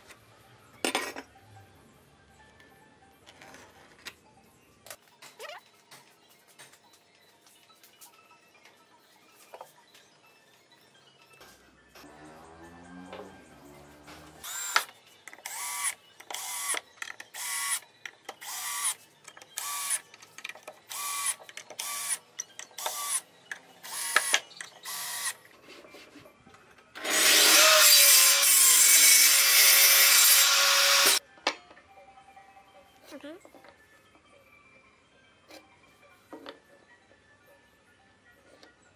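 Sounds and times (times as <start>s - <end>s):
cordless drill driving screws: 23.8s - 25.3s
table saw running: 27.0s - 31.2s.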